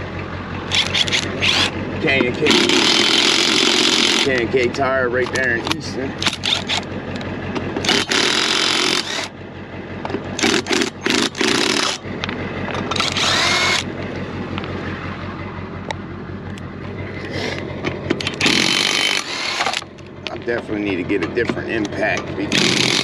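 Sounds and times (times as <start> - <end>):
steady low hum: 0.0 - 23.0
impact wrench hammering lug nuts: 0.7 - 4.5, 6.2 - 6.8, 7.8 - 9.3, 10.1 - 12.0, 12.8 - 13.9, 18.1 - 19.9, 20.8 - 23.0.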